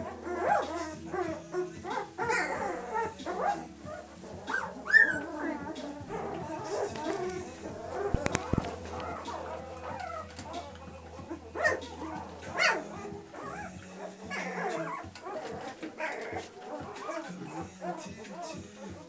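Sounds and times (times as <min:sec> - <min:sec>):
puppies whimpering: 0:00.0 - 0:19.0
sharp clicks: 0:05.7 - 0:11.0.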